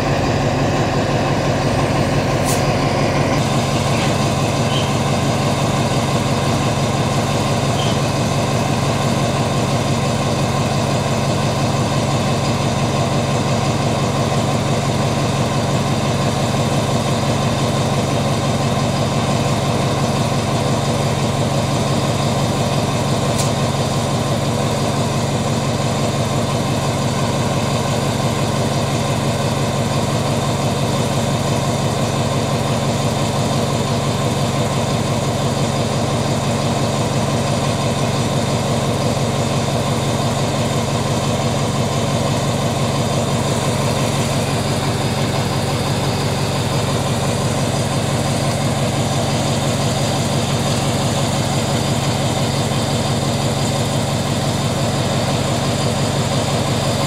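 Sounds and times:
locomotive engine idling: 0.0 - 57.0.

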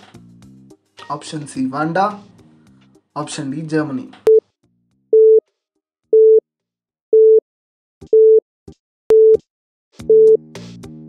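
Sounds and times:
music: 0.0 - 5.9, 9.1 - 11.0.

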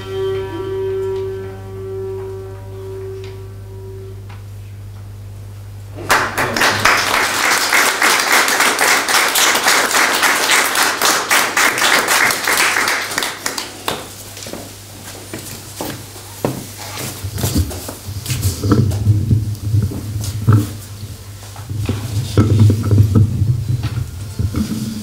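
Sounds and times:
small audience applauding: 6.0 - 14.5.

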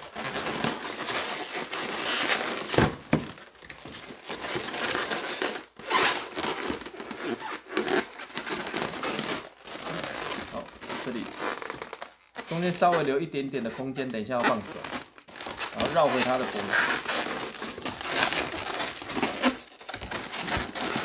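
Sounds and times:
balloons squeaking and rubbing: 0.0 - 21.0.

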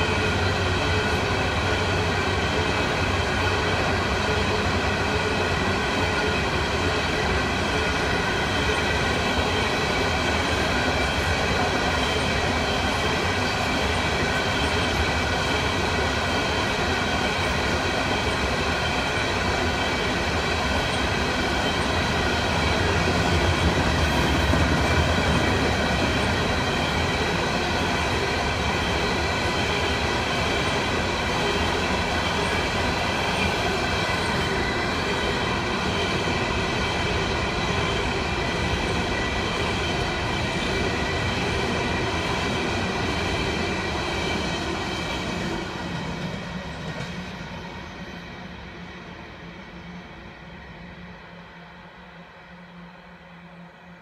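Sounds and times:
steel wheels rumbling on rail: 0.0 - 54.0.

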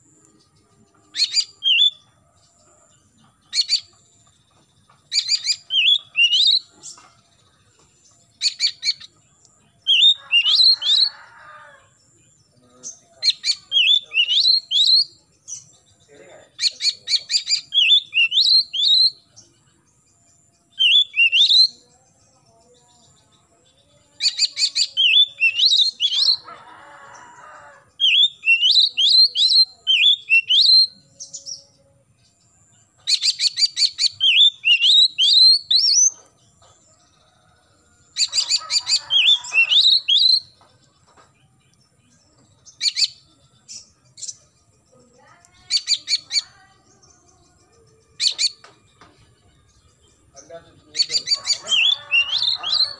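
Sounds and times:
bird singing whistled notes: 0.2 - 2.1, 5.1 - 6.8, 8.3 - 11.2, 12.4 - 15.9, 16.6 - 19.5, 20.4 - 22.1, 23.0 - 26.4, 28.0 - 31.7, 33.0 - 36.2, 38.0 - 40.6, 42.4 - 44.8, 45.7 - 52.9.

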